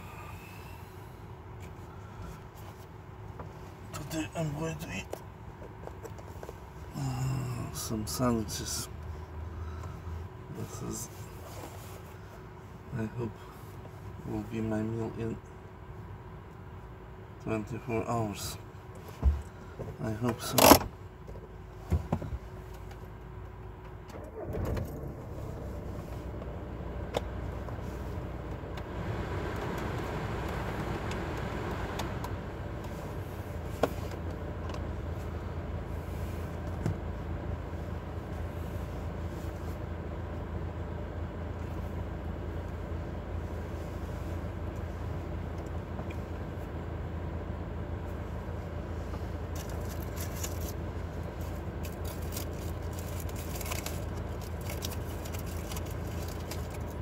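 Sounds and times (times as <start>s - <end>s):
car cabin hum: 0.0s - 57.0s
plastic box rustling: 51.4s - 57.0s.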